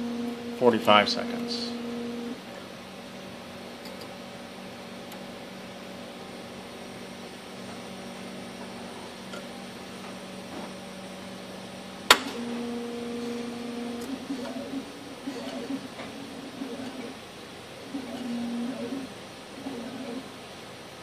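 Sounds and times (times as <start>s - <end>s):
scanner mechanical hum: 0.0s - 21.0s
motor tone: 1.3s - 2.4s, 12.3s - 17.2s, 17.9s - 20.3s.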